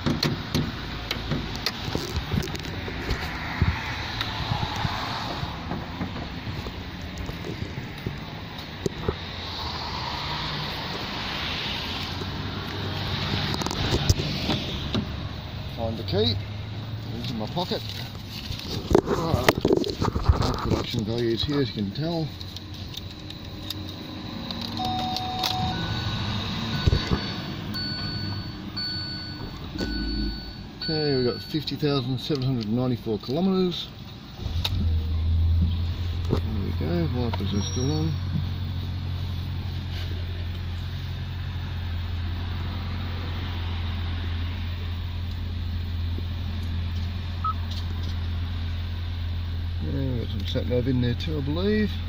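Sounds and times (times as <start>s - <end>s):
dashboard beep tones: 24.8s - 31.7s
car engine idling: 33.0s - 52.0s.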